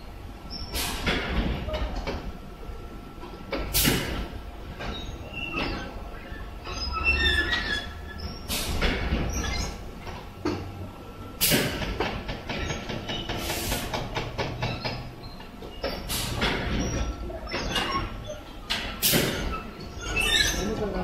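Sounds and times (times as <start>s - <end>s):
squeaks and clatter: 0.5s - 2.2s, 4.7s - 10.6s, 11.8s - 21.0s
compressed air hissing: 0.6s - 1.2s, 3.6s - 4.4s, 8.2s - 9.0s, 11.4s - 11.8s, 13.3s - 14.1s, 16.0s - 16.7s, 19.0s - 19.5s.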